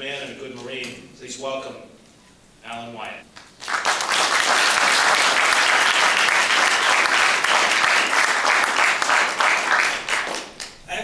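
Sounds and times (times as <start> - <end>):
audience applauding: 3.3 - 10.8.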